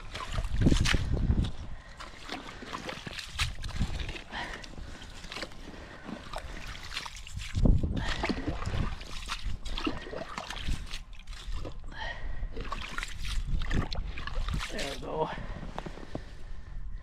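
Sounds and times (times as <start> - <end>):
dripping water: 0.0 - 11.8
water sloshing: 0.0 - 16.4.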